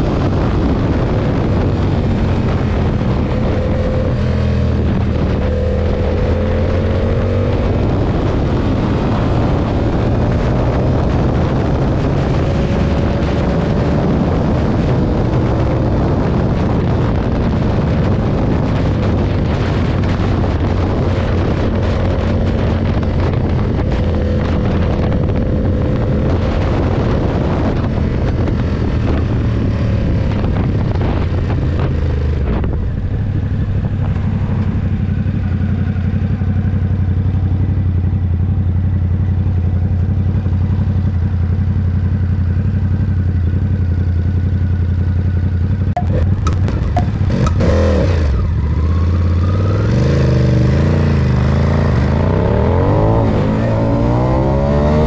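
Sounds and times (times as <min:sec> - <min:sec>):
motorcycle engine running: 0:00.0 - 0:55.0
wind noise on microphone: 0:00.0 - 0:55.0.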